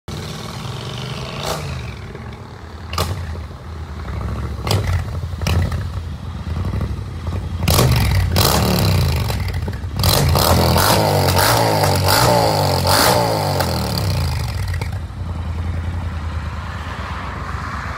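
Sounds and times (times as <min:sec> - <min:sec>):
motorcycle engine revving: 0:00.1 - 0:16.1.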